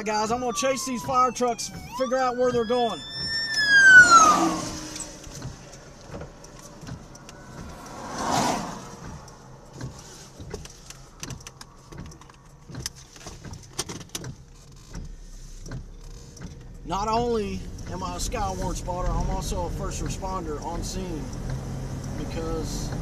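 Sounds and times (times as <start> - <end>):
emergency vehicle siren wailing: 0.0 - 9.4
car passing by: 3.2 - 11.2
light ticks and taps: 5.0 - 8.0, 9.0 - 23.0.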